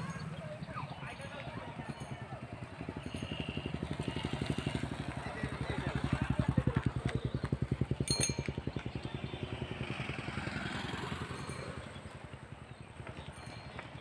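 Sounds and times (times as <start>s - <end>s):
engine running: 0.0s - 14.0s
metallic clink: 8.0s - 8.7s, 13.1s - 14.0s.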